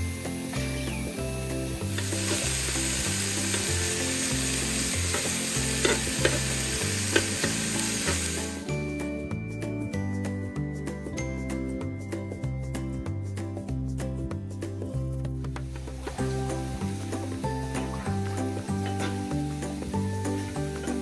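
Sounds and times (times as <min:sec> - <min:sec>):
meat sizzling on hot plate: 0:00.0 - 0:08.7, 0:15.7 - 0:21.0
background music with bass line: 0:00.0 - 0:21.0.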